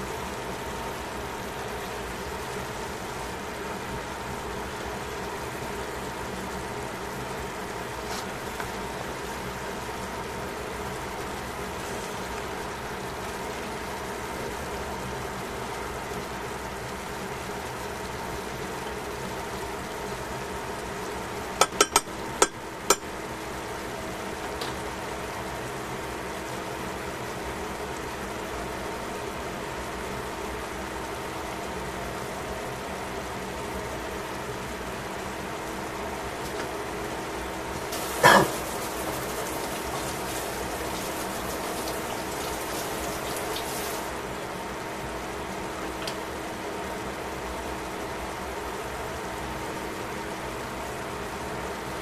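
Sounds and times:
food sizzling in a pan: 15.6 - 23.6, 37.8 - 44.2
tongs knocking against a pan: 21.6 - 23.1
vegetables sizzling in a pan: 37.8 - 44.3.

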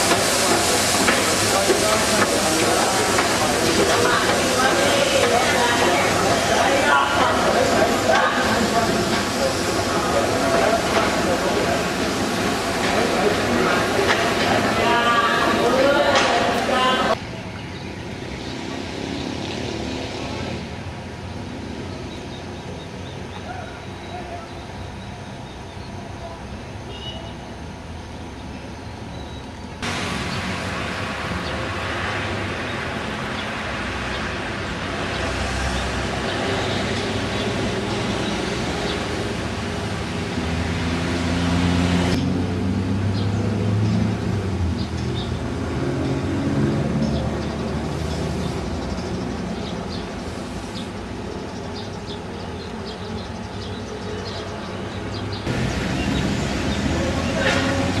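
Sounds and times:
traffic hiss: 0.0 - 58.0
vehicle engine passing: 29.8 - 51.0, 55.4 - 58.0.

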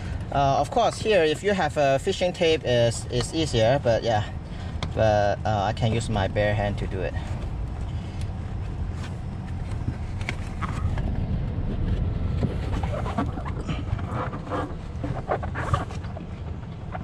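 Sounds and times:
steady low rumble: 0.0 - 17.0
wire scraping under carpet: 11.8 - 16.2.

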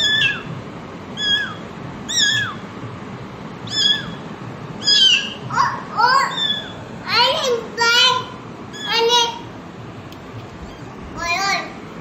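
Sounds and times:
kittens mewing: 0.0 - 2.8, 3.6 - 9.5.

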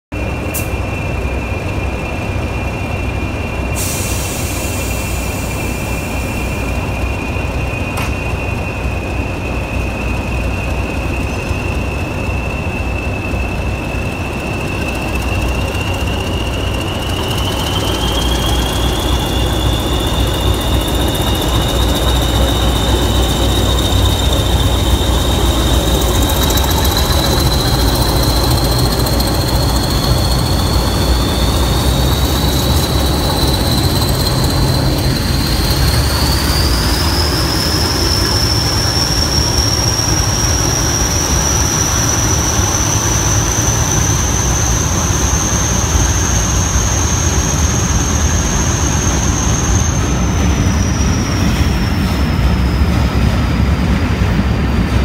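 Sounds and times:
diesel locomotive engines: 0.0 - 55.0
high turbocharger whistle: 0.2 - 53.3.

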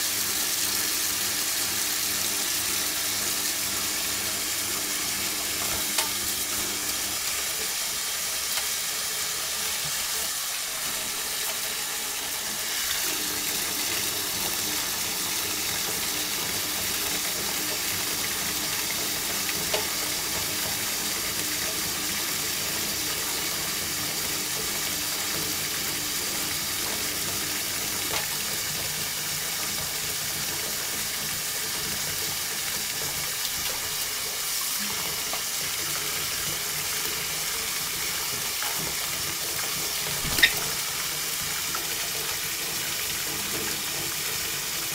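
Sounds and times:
tap water rushing into sink: 0.0 - 44.9.

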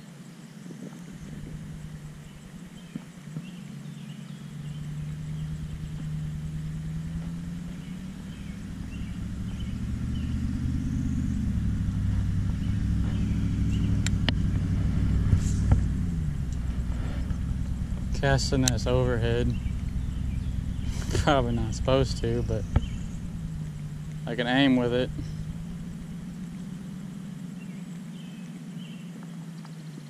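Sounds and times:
vehicle engine approaching: 0.8 - 30.0
sharp clicks: 13.8 - 20.0.

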